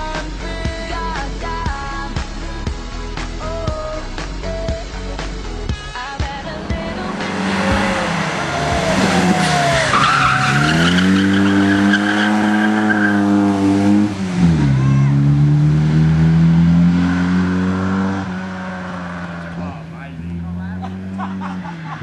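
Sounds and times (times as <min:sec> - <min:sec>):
rally car engine revving: 0:05.1 - 0:22.0
tyres squealing: 0:07.3 - 0:13.6.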